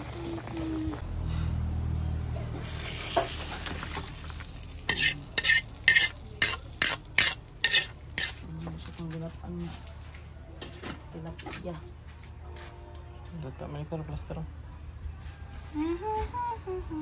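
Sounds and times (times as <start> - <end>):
metal ladle scraping in a wok: 4.7 - 8.5.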